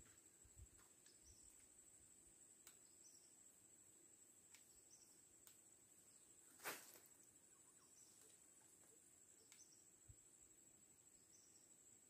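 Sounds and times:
faint swamp ambience: 0.0 - 12.0
faint ticks: 2.6 - 3.2, 5.4 - 5.7, 8.2 - 9.8
soft chirps: 4.5 - 10.2.

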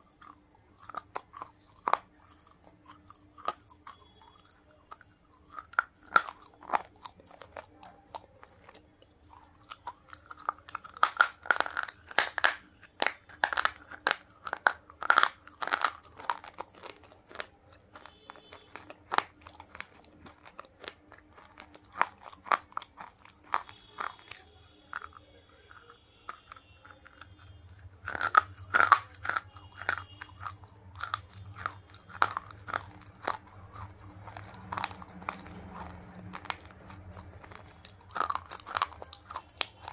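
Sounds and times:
crunching and chewing: 0.0 - 39.9.

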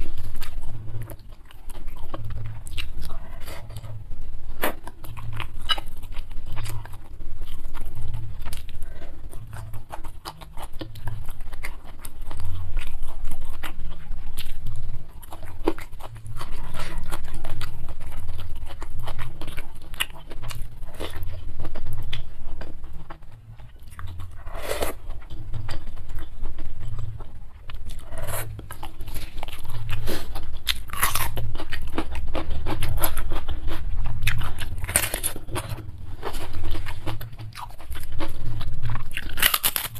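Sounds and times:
chewing and munching noodles: 0.0 - 39.9
crunchy bites: 28.0 - 39.9.

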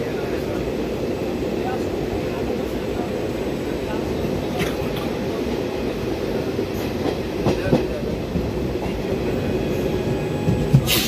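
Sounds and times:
train wheels rumbling: 0.0 - 11.0
rail clicks: 3.9 - 11.0.

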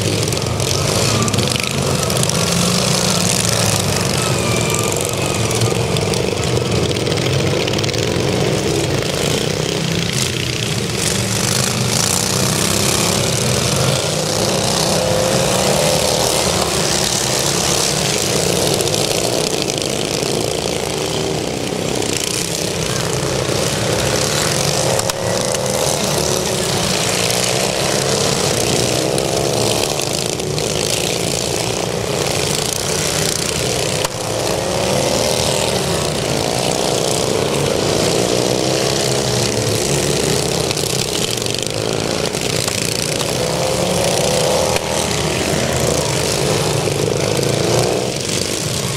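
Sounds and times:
racing mower engines: 0.0 - 48.9.

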